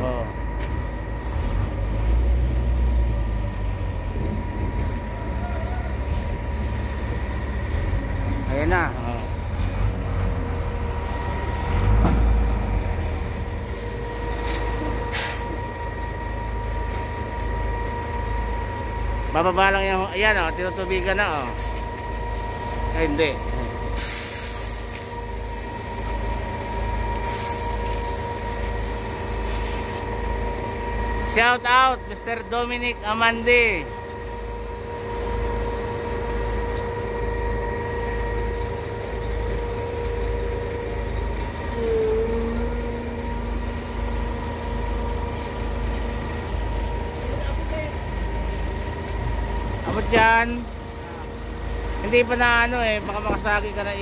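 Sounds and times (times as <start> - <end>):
constant pump whine: 0.0 - 54.0
truck engine rumble: 0.0 - 54.0
short high squeal: 24.0 - 25.8, 27.2 - 27.9, 41.7 - 43.5.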